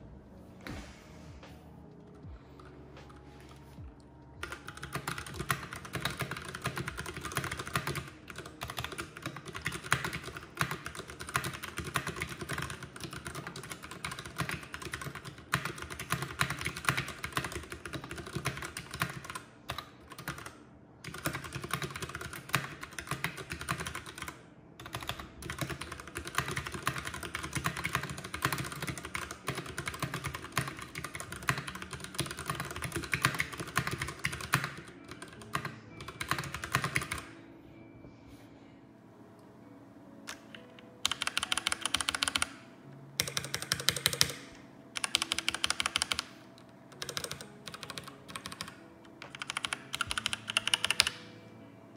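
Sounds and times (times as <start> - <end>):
mechanical keyboard typing: 2.0 - 37.4, 40.2 - 51.4.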